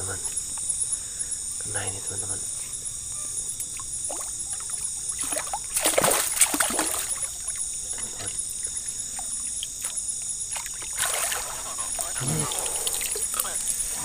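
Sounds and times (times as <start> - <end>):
fish splashing in water: 3.6 - 13.6.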